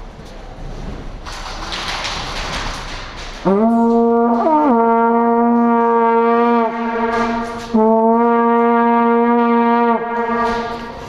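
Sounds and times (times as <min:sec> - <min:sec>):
plastic horn blasts: 0:03.4 - 0:11.0.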